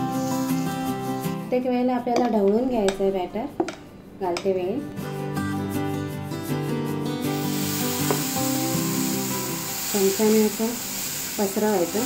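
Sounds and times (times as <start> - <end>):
background music: 0.0 - 12.0
batter sizzling on hot pan: 7.3 - 12.0.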